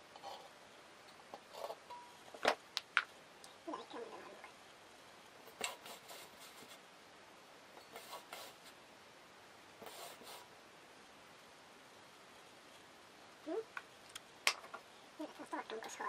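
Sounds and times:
marker scribbling on steel bowl: 0:07.8 - 0:08.8, 0:09.8 - 0:10.5.

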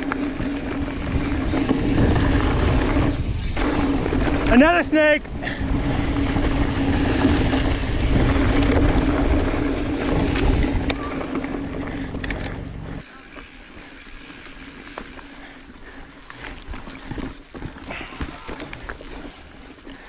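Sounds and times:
wind buffeting microphone: 0:00.0 - 0:13.0
bike tyre rumble on dirt: 0:00.0 - 0:20.0
steady low hum: 0:11.0 - 0:13.2.

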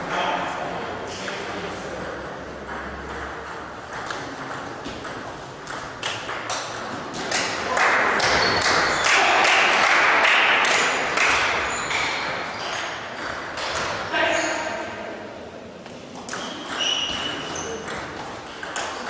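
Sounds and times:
distant ping pong pings: 0:01.8 - 0:14.5, 0:16.2 - 0:19.0
spectators applauding: 0:07.7 - 0:11.5
table tennis ball clicking: 0:16.2 - 0:19.0.

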